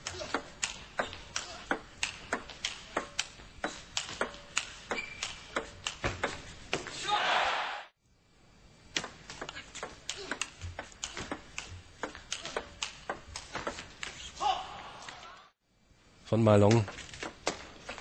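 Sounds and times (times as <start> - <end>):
table tennis ball clicking: 0.3 - 6.8, 9.0 - 14.2.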